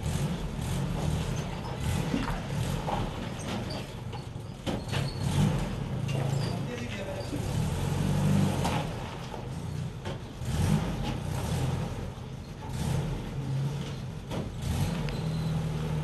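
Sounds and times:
jeep engine at low revs: 0:00.0 - 0:16.0.

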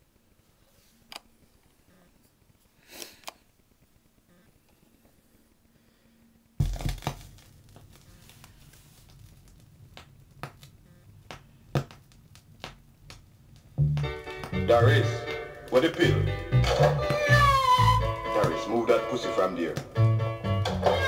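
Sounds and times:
vinyl crackle and pops: 0:00.0 - 0:21.0
stylus thump on record: 0:06.6 - 0:07.4, 0:11.3 - 0:12.0.

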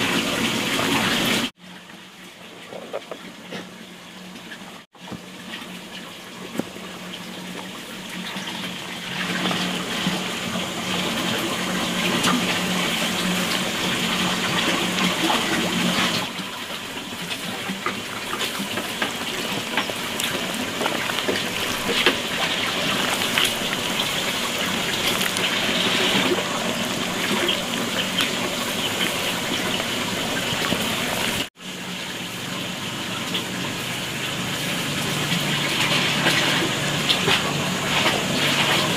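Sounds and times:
wet squelching of cabbage pressed: 0:17.7 - 0:31.5.

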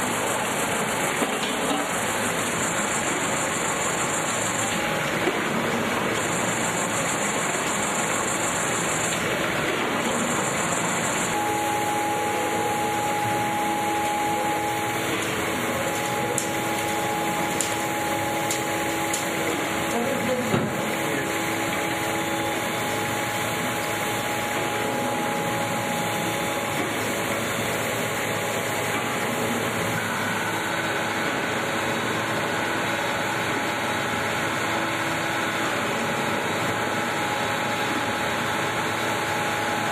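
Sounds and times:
mill machinery running: 0:00.0 - 0:39.9
steady hum: 0:00.0 - 0:39.9.

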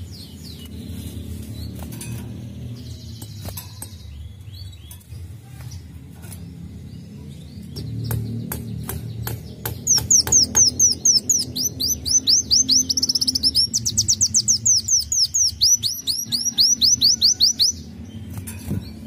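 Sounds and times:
bird singing whistled notes: 0:07.7 - 0:18.2.

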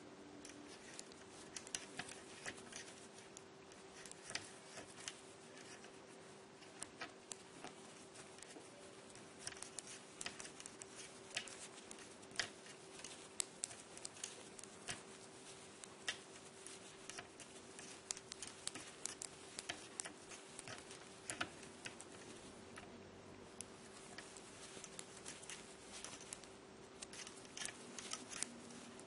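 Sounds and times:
metal knitting needles clicking: 0:00.4 - 0:06.0, 0:06.6 - 0:22.9, 0:23.6 - 0:29.0.

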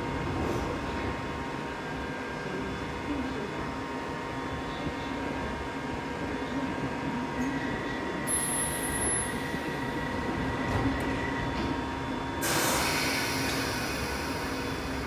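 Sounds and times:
train equipment humming: 0:08.2 - 0:15.0
train doors closing: 0:08.3 - 0:15.0
loud air hiss: 0:12.4 - 0:15.0.

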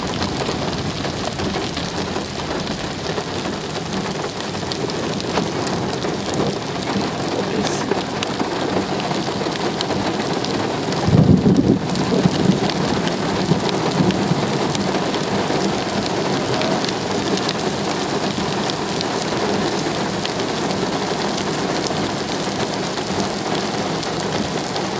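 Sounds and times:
thunder rumble: 0:00.0 - 0:18.5
rain on wet pavement: 0:00.0 - 0:24.9.

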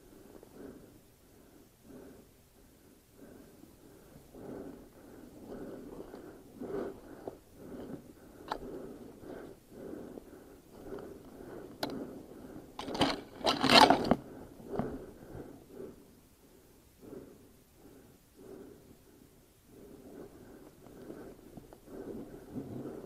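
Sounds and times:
rustling and crackling: 0:12.8 - 0:15.0.

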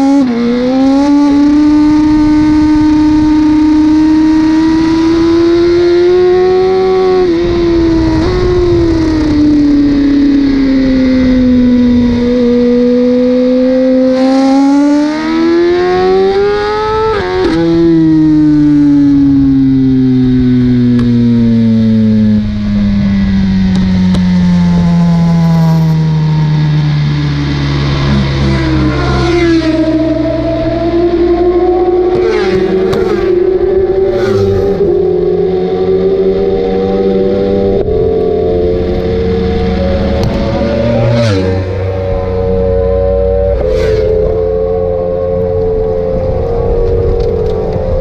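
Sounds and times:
motorcycle engine at full throttle: 0:00.0 - 0:48.0
wind rush: 0:01.3 - 0:13.3, 0:27.3 - 0:48.0
motorcycle engine revs dropping: 0:31.9 - 0:35.0.

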